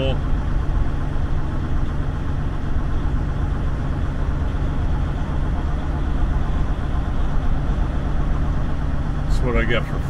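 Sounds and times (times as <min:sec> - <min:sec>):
road noise: 0:00.0 - 0:10.0
truck diesel engine running: 0:00.0 - 0:10.0.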